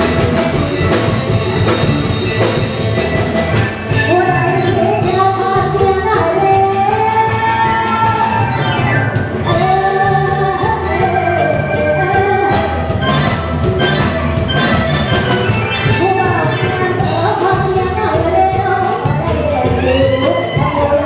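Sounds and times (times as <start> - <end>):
live band playing upbeat music: 0.0 - 21.0
steady drum beat: 0.0 - 21.0
person singing: 3.8 - 14.6, 15.6 - 21.0.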